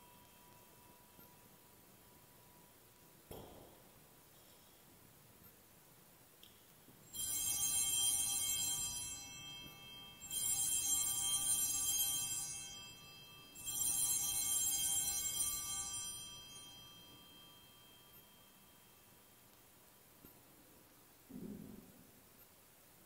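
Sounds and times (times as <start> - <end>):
altar bells ringing: 0.0 - 3.0, 7.0 - 20.2.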